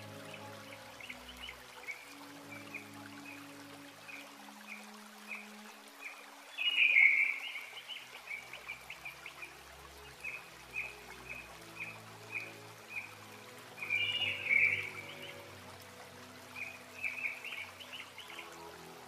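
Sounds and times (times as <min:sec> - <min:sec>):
soft music of held low notes: 0:00.0 - 0:19.0
bird-like chirping: 0:13.8 - 0:15.4.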